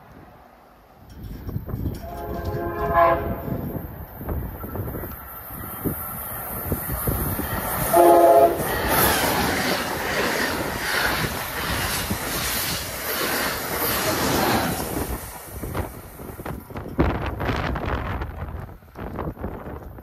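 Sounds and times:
train rushing past: 0:00.0 - 0:20.0
train wheels clattering on rails: 0:01.0 - 0:20.0
train horn blast: 0:01.9 - 0:03.8, 0:07.8 - 0:08.8.

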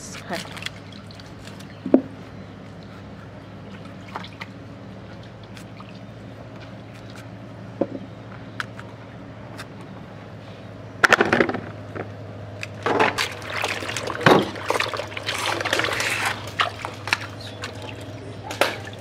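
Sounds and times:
water splashing in plastic basin: 0:00.2 - 0:01.8, 0:12.8 - 0:19.0.

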